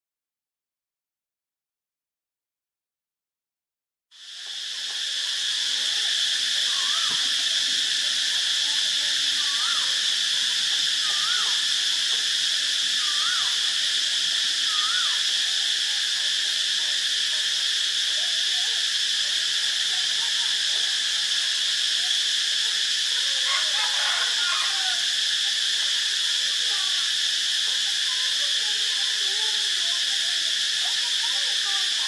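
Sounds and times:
cicada singing: 4.1 - 32.0.

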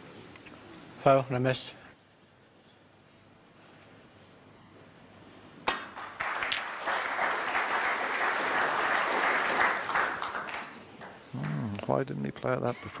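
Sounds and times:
audience applause: 5.7 - 11.6.

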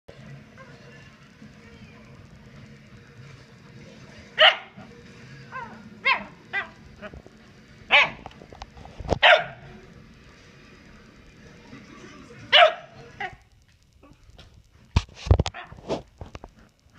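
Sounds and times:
dog barking: 4.4 - 4.8, 5.6 - 6.8, 7.9 - 8.3, 9.2 - 9.6, 12.5 - 13.3.

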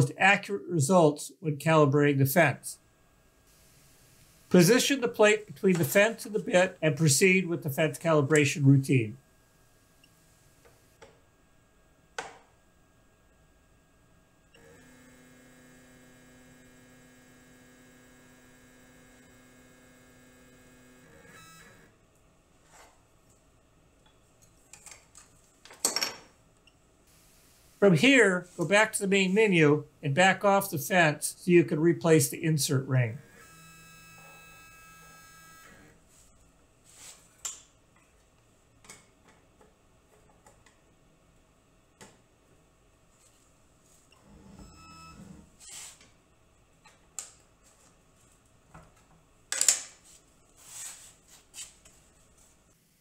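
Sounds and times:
motor drive humming: 3.4 - 6.9, 14.4 - 22.0.

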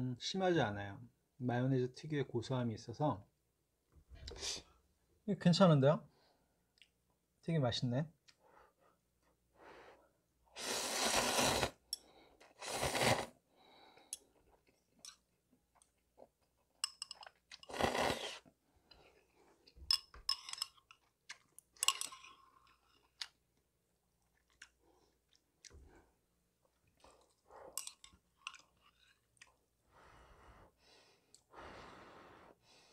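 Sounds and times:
slurping noodles: 10.6 - 13.4, 17.6 - 18.5
chewing: 24.2 - 25.9, 26.6 - 29.6.

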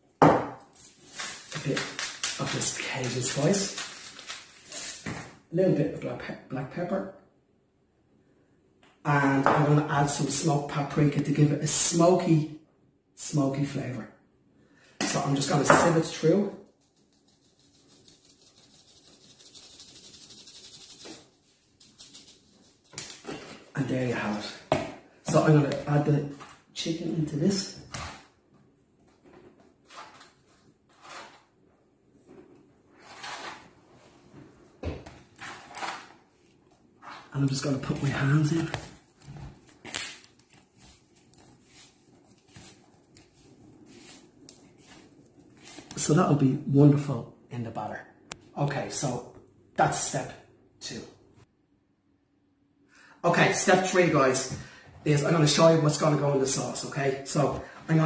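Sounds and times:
flour sifting through sieve: 0.7 - 5.1, 16.2 - 23.0, 33.0 - 33.7, 40.6 - 46.2.

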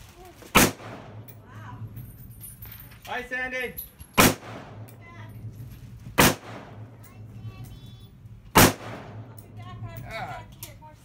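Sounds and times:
rifle shots with echo: 0.5 - 1.4, 4.2 - 5.0, 6.2 - 7.0, 8.5 - 9.5.

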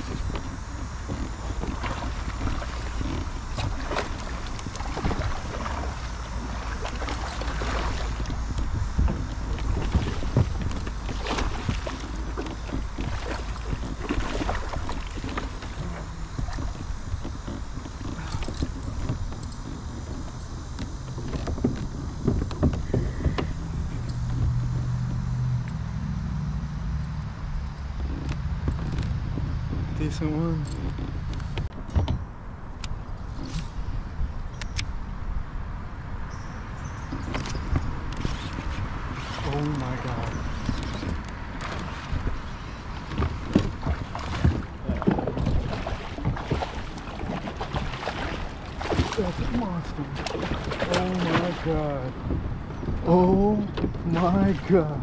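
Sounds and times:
water splashes: 0.0 - 31.8, 37.0 - 55.0
steady low hum: 0.0 - 55.0
wind rumbling on microphone: 0.0 - 55.0
knocks and clicks of rod handling: 6.4 - 25.8, 27.7 - 33.8, 37.1 - 49.2.

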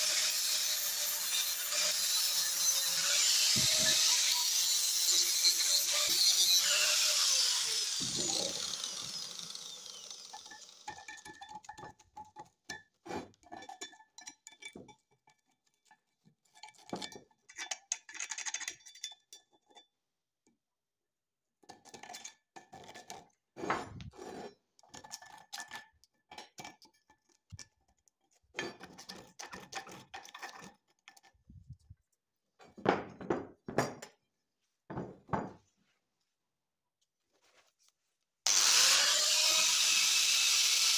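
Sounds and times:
angle grinder spinning down: 0.0 - 10.9, 38.5 - 40.9.

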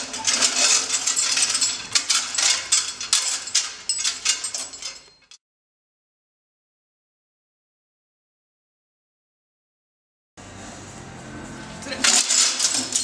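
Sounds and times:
chain and steel frame clanking: 0.0 - 5.4, 11.9 - 13.0.

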